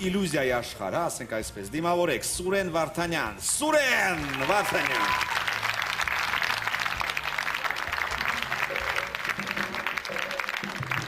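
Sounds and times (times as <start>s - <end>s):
stage music with low notes: 0.0s - 11.0s
audience applauding: 3.5s - 11.0s.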